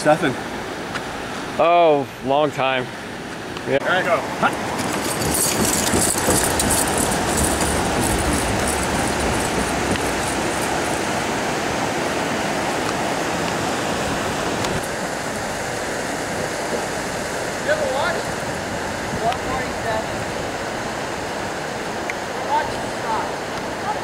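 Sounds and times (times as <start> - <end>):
creek rushing: 0.0 - 24.0
climbing gear clattering: 4.5 - 11.1
quick footfalls: 4.7 - 11.0.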